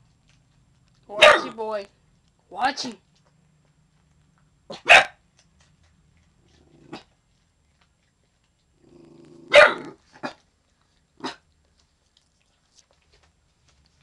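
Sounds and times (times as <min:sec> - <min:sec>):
dog barking: 0:01.2 - 0:01.6, 0:04.7 - 0:05.2, 0:09.5 - 0:10.4
dog growling: 0:06.4 - 0:07.2, 0:08.7 - 0:10.4.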